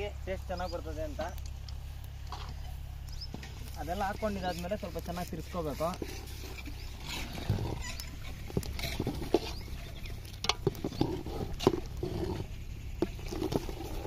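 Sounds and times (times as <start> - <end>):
metal ladle scraping pot: 5.3 - 12.4, 13.0 - 14.0.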